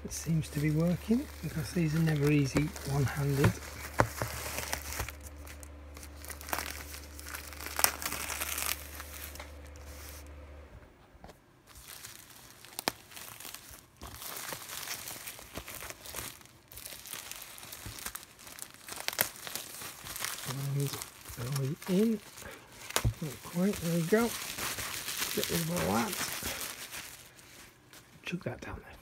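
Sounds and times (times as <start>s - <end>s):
plastic shrink-wrap crinkling: 0.0s - 10.3s, 11.6s - 28.2s.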